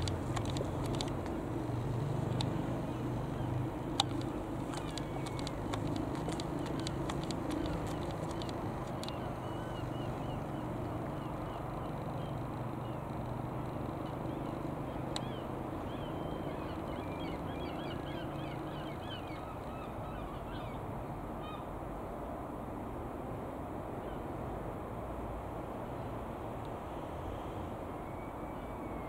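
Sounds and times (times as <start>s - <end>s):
birds chirping: 0.0s - 20.8s
distant helicopter drone: 0.0s - 29.0s.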